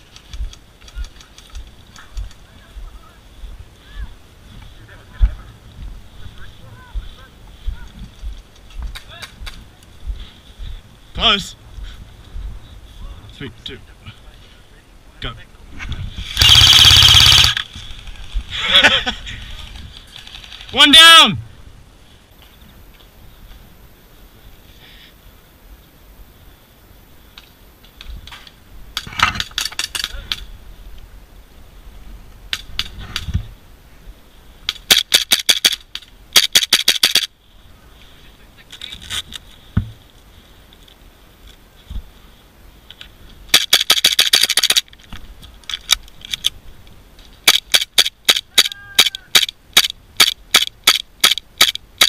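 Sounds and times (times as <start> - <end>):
airsoft guns firing: 16.3 - 17.7, 47.4 - 52.0.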